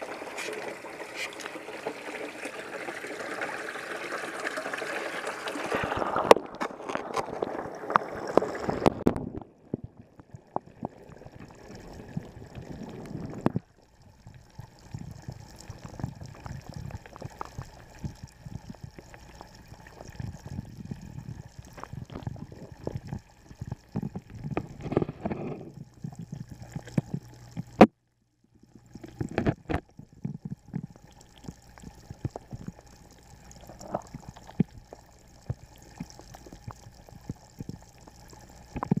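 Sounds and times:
waterfall splashing into pond: 0.0 - 9.0
underwater clicks and knocks: 5.8 - 28.0, 28.8 - 39.0.

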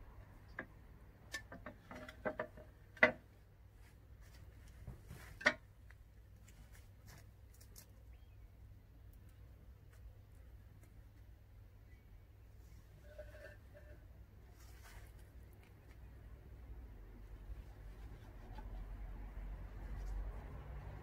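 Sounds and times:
vases handled on glass table: 1.4 - 3.2.

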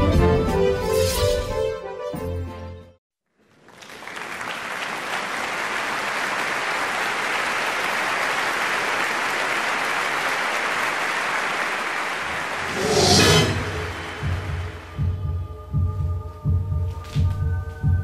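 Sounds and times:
audience applause: 3.4 - 12.9
low throb: 12.6 - 16.7.

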